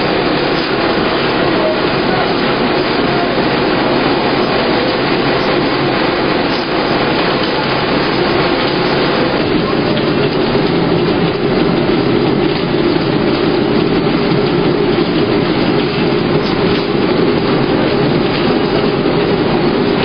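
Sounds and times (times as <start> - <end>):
sorting machine rattling: 0.0 - 20.0.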